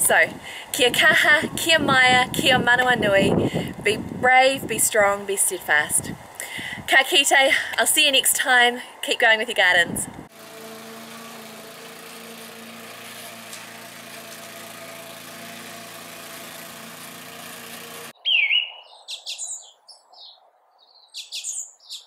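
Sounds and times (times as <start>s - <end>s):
lawn mower engine running: 10.3s - 18.2s
birds chirping: 18.2s - 22.0s.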